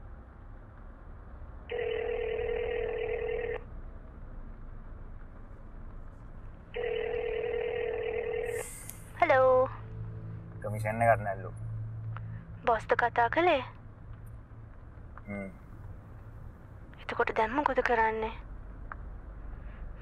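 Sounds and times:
faint low hum: 0:00.0 - 0:20.0
telephone ringback tone: 0:01.7 - 0:03.6, 0:06.8 - 0:08.6.

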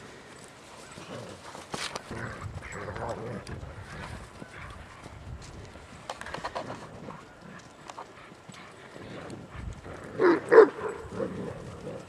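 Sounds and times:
dogs scuffling: 0:00.1 - 0:12.0
dog barking: 0:10.2 - 0:11.0.

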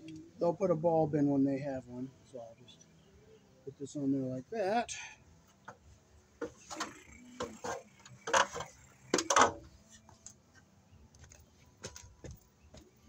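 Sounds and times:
footsteps on a ladder: 0:11.2 - 0:12.9.

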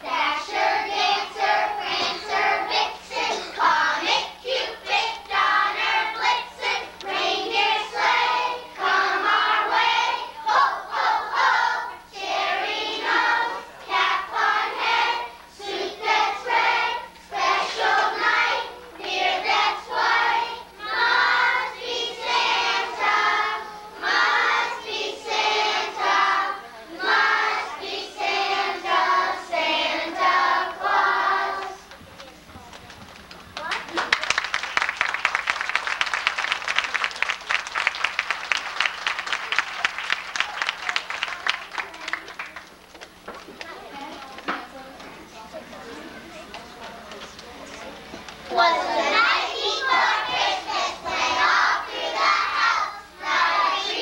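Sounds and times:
children's choir singing: 0:00.0 - 0:31.9, 0:44.6 - 0:54.0.

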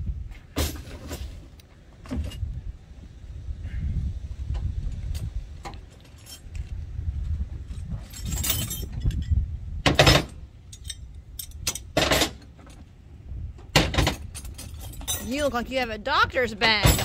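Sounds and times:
wind rumble on microphone: 0:00.0 - 0:17.0
metal hand tools clinking: 0:10.7 - 0:12.2, 0:14.2 - 0:15.5.

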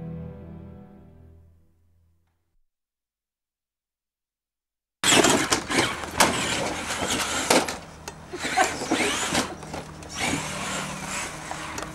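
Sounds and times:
electric motor whining: 0:05.0 - 0:11.9
toy truck bumping over wood: 0:05.0 - 0:11.9.

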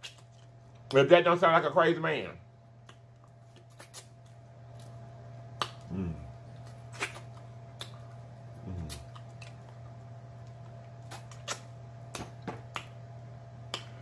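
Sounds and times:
steady low hum: 0:00.0 - 0:14.0
wet lip smacks and mouth clicks: 0:02.8 - 0:04.9, 0:06.6 - 0:08.2, 0:08.8 - 0:13.0, 0:13.7 - 0:14.0
person humming: 0:05.8 - 0:06.3, 0:08.6 - 0:09.0.

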